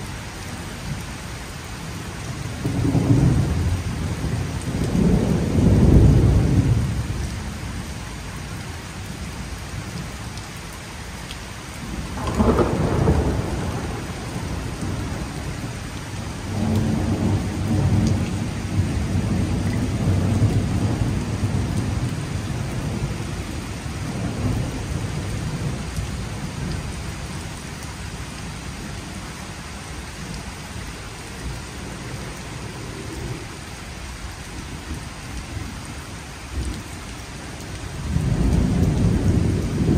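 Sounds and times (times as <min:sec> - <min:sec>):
steady rain: 0:00.0 - 0:39.9
thunder rumbling: 0:11.9 - 0:27.0, 0:37.8 - 0:39.9.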